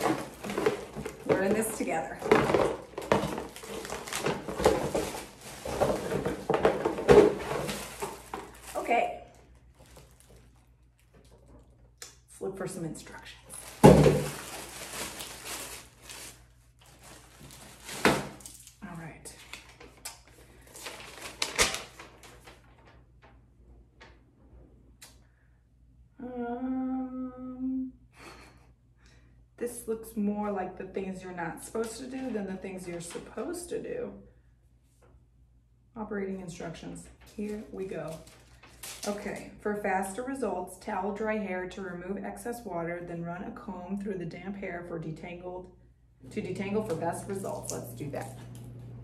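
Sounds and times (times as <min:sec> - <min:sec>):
scrapes and knocks: 0:00.0 - 0:08.6
cardboard and plastic rustling: 0:00.0 - 0:11.9, 0:13.2 - 0:23.3, 0:37.0 - 0:39.6
paper leaflet rustling: 0:19.4 - 0:23.3
woman humming: 0:26.2 - 0:28.0.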